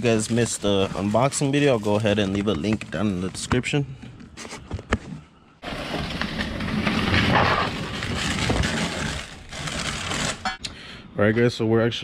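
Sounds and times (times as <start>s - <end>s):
plastic wrapping crinkling: 0.0s - 3.5s, 5.6s - 10.6s.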